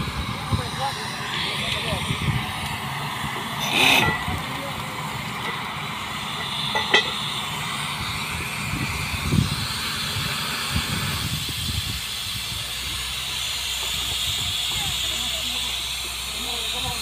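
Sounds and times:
drilling rig engine running: 0.0 - 17.0
water and mud spraying: 0.0 - 17.0
sharp metallic clank: 3.6 - 4.4, 6.3 - 7.2.

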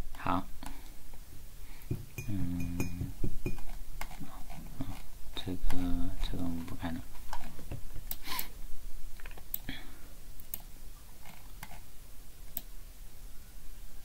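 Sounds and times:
computer clicks and taps: 1.9 - 4.2.

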